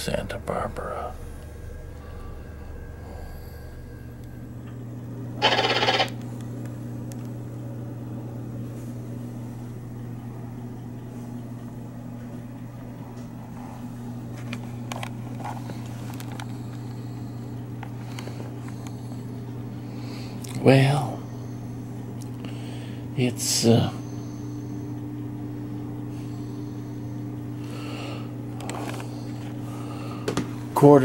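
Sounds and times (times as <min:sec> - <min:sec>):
railcar interior hum: 0:00.0 - 0:05.2
loud burst of noise: 0:05.4 - 0:06.2.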